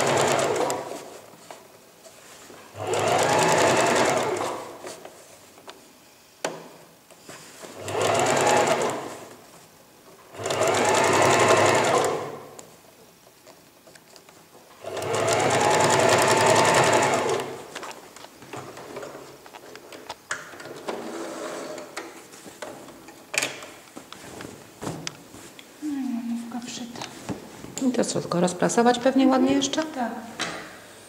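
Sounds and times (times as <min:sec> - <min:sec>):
sewing machine stitching: 0:00.0 - 0:01.1, 0:02.8 - 0:04.8, 0:07.8 - 0:09.2, 0:10.3 - 0:12.5, 0:14.8 - 0:17.7.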